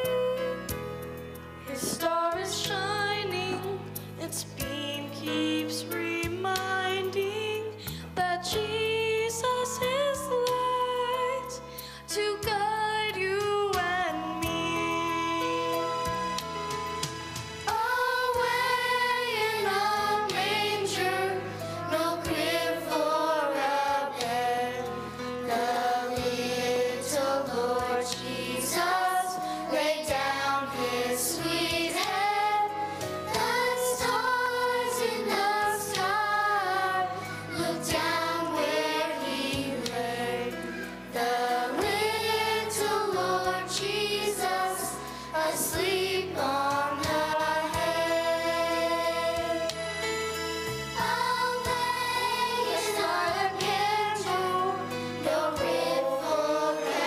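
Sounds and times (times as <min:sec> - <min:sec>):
instrumental accompaniment: 0:13.4 - 0:57.0
children's choir singing: 0:13.8 - 0:57.0.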